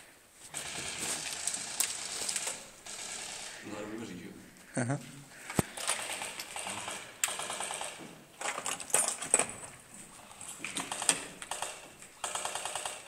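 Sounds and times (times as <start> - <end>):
airsoft guns firing bursts: 0.5 - 3.8, 5.8 - 8.6, 10.8 - 13.0.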